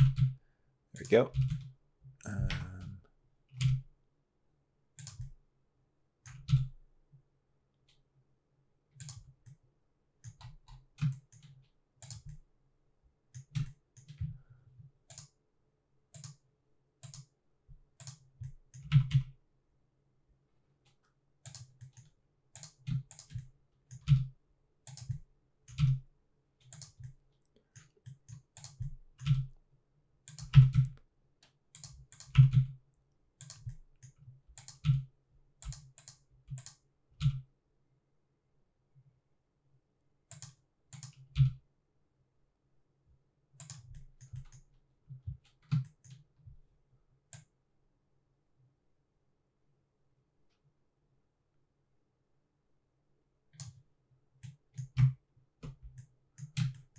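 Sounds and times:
computer keyboard keystrokes: 3.5s - 3.8s, 5.0s - 5.4s, 6.3s - 6.7s, 9.0s - 9.6s, 10.2s - 12.4s, 15.1s - 15.4s, 16.2s - 16.4s, 17.0s - 17.3s, 18.0s - 19.4s, 21.4s - 26.0s, 26.6s - 29.5s, 30.2s - 32.8s, 33.4s - 37.4s, 40.3s - 41.6s, 43.6s - 44.6s, 45.2s - 46.2s, 54.4s - 56.9s.

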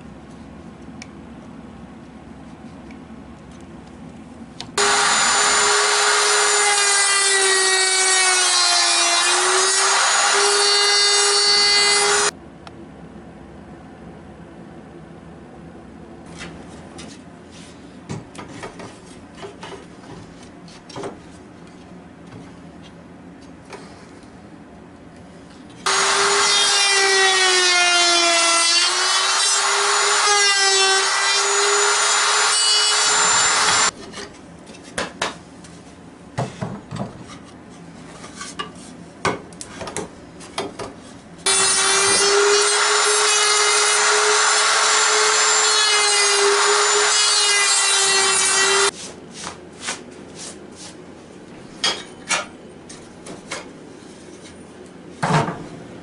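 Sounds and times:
router motor whining: 4.8s - 7.3s, 9.2s - 12.3s, 25.9s - 28.1s, 28.9s - 33.9s.

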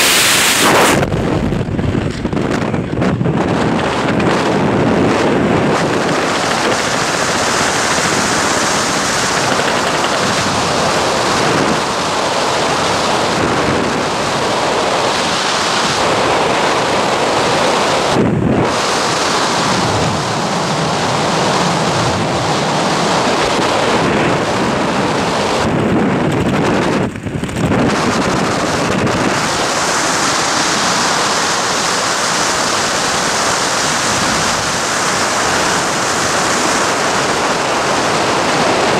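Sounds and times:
wind buffeting microphone: 0.0s - 38.9s.

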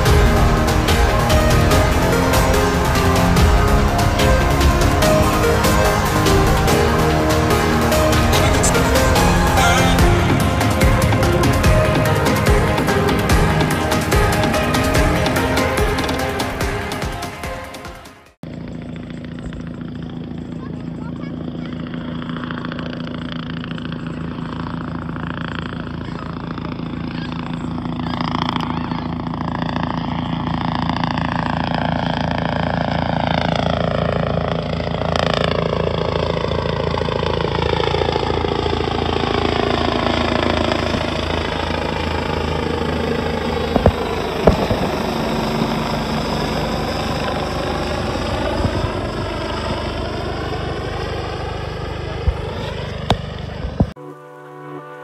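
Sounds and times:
helicopter rotor chopping: 0.0s - 54.0s
sharp knocks: 43.7s - 45.1s.

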